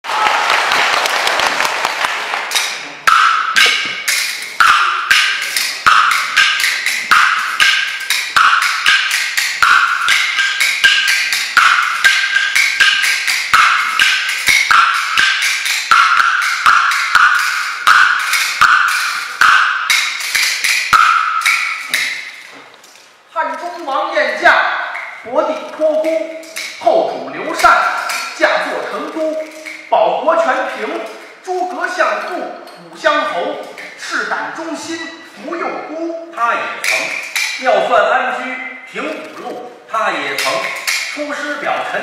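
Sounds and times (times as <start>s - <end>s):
applause: 0.0s - 2.5s
bamboo clappers clacking: 2.0s - 35.6s, 36.3s - 42.0s.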